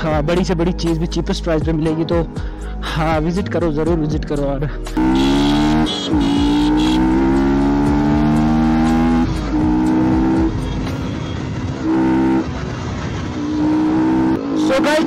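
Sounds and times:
motorcycle engine accelerating: 5.0s - 15.0s.

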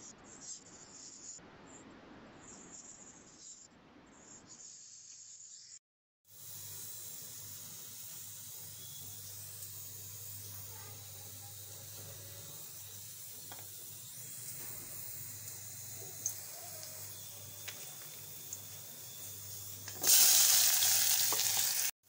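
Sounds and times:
seeds sizzling in hot oil: 6.3s - 22.0s.

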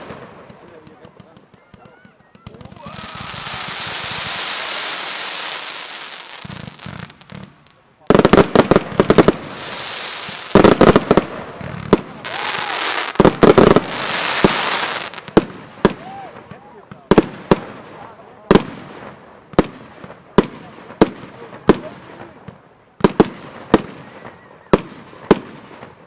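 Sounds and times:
fireworks crackling bangs: 0.0s - 26.0s
firework comet tails hissing: 2.7s - 7.6s, 8.2s - 16.1s.

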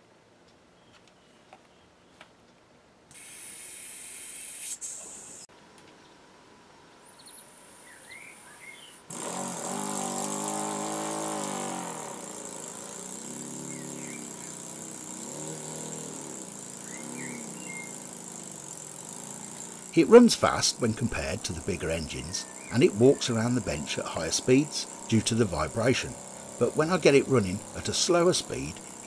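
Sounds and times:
air hissing: 3.1s - 5.5s
model engine buzzing chatter: 9.1s - 29.0s.

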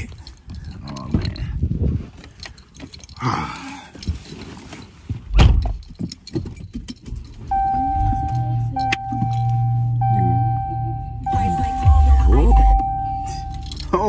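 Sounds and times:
rustling: 3.9s - 7.5s
low hum: 7.5s - 14.0s
steady electronic tone: 7.5s - 14.0s.

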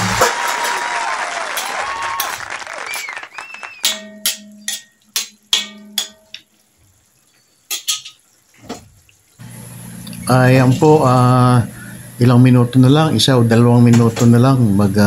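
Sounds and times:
metal ladle clanking in wok: 3.8s - 6.5s, 7.7s - 8.2s.

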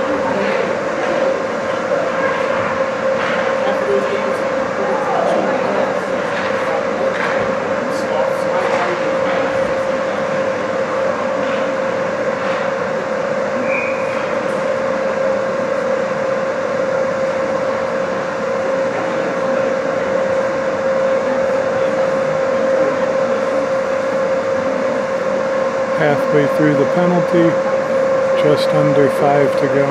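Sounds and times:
ventilation fan humming: 0.0s - 29.9s
faint referee whistle: 13.6s - 14.3s.

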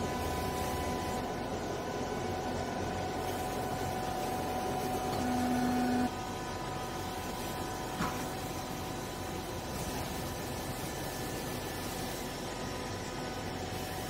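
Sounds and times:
hydraulic pump motor humming: 4.3s - 6.2s.

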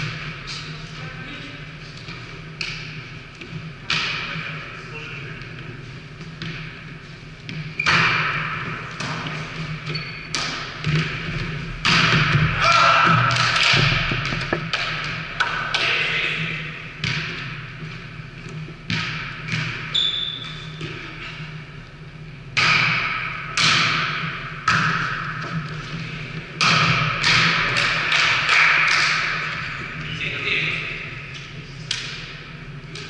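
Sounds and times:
volleyball thuds in gym hall: 2.0s - 21.7s, 22.4s - 30.0s
shoe squeak: 9.8s - 10.4s, 19.9s - 20.8s.

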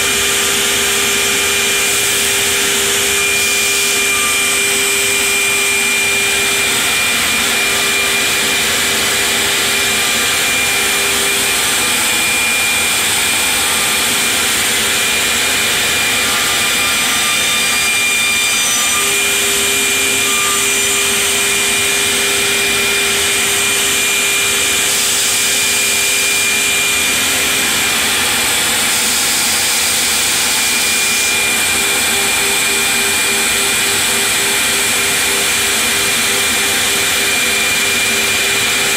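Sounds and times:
router cutting wood: 0.0s - 38.9s
router spindle whine: 0.0s - 38.9s.

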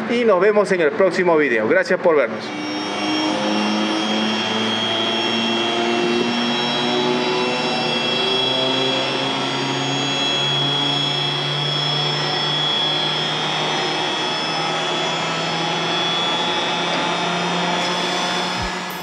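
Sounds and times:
air compressor running: 2.3s - 19.0s
faint high whine: 2.3s - 19.0s.

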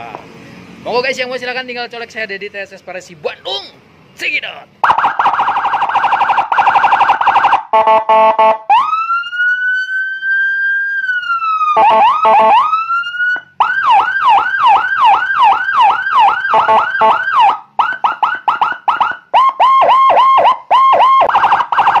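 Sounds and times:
police siren cycling tones: 4.8s - 22.0s.

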